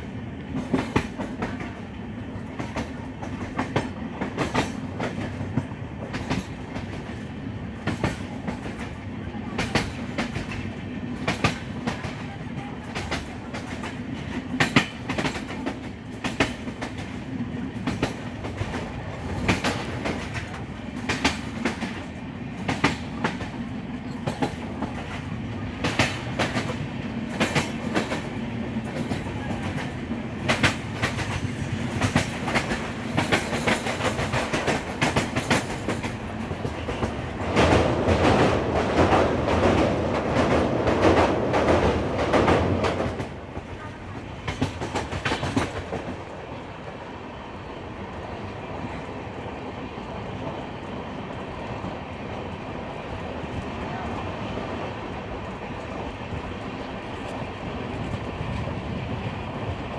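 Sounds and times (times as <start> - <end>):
train rumbling: 0.0 - 59.9
train wheels clicking over rail joints: 0.4 - 1.8, 2.5 - 7.2, 7.8 - 12.2, 12.8 - 46.3.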